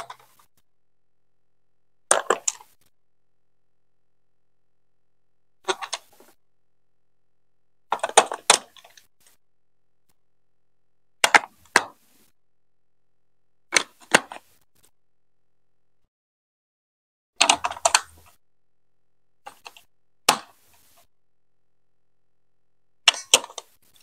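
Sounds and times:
plastic blocks clicking together: 2.1 - 2.8, 5.7 - 6.4, 7.9 - 9.1, 17.4 - 18.3, 23.1 - 23.7.

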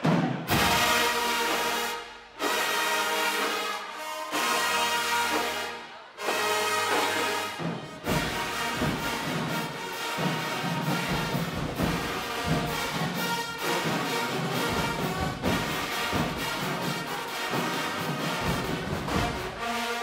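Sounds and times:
marching band playing: 0.0 - 20.0
drum hits: 7.6 - 19.6.

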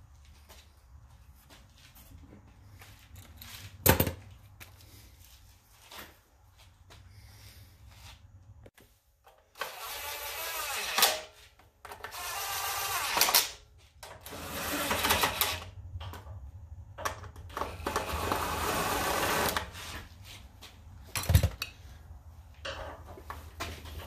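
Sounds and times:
cordless drill driving screws: 9.6 - 11.3, 12.0 - 13.6, 14.2 - 15.7, 17.6 - 19.8.

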